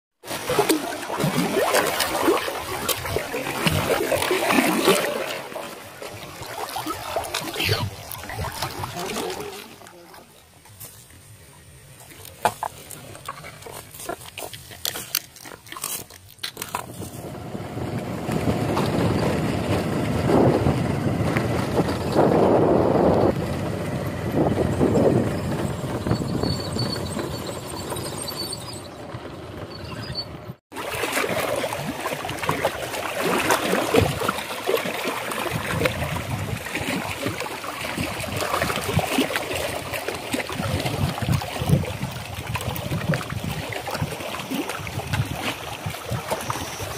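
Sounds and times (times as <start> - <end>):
small waves lapping on rocks: 0.2 - 17.3, 30.7 - 46.9
wind rushing over microphone: 16.9 - 27.6, 35.5 - 37.1, 40.6 - 44.2.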